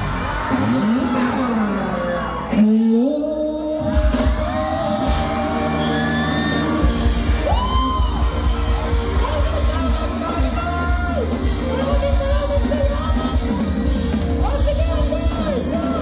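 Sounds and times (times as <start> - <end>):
bass: 0.0 - 16.0
drums: 3.6 - 16.0.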